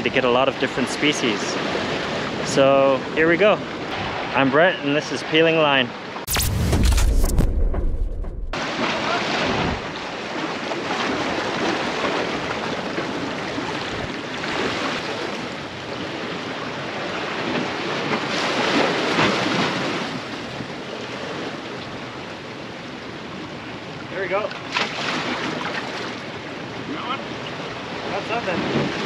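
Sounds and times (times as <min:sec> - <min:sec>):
sea waves washing against rocks: 0:08.6 - 0:21.5.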